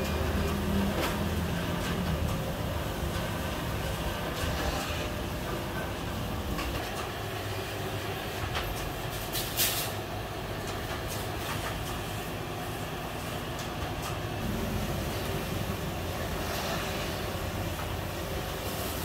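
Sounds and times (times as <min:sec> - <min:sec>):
low machine rumble: 0:10.1 - 0:19.0.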